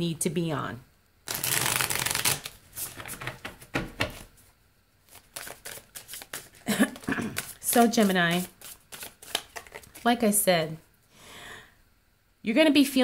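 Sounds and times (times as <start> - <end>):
cards being shuffled by hand: 1.3 - 4.4, 5.0 - 10.1.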